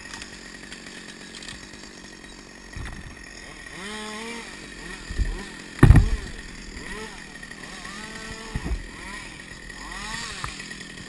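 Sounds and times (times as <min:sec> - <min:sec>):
chainsaw idling: 0:00.0 - 0:11.0
dull knock: 0:05.2 - 0:06.4.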